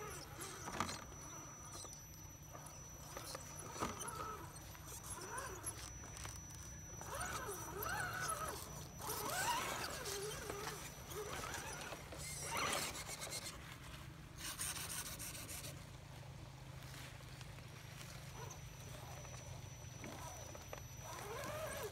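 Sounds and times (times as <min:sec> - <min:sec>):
electric motor and gears whining: 0:00.0 - 0:21.9
tyres crunching over rocks: 0:02.6 - 0:12.8.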